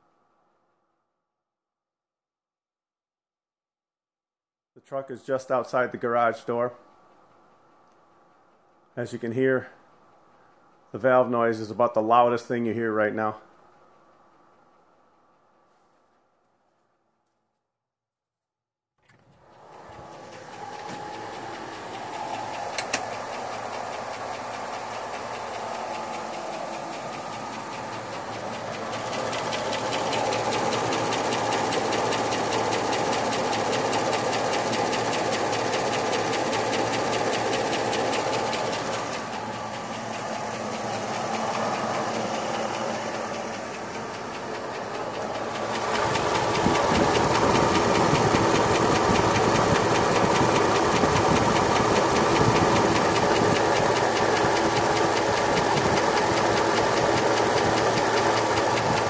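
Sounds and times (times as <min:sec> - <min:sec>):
car engine idling: 0:19.4 - 0:59.0
rapid valve ticking: 0:20.4 - 0:59.0.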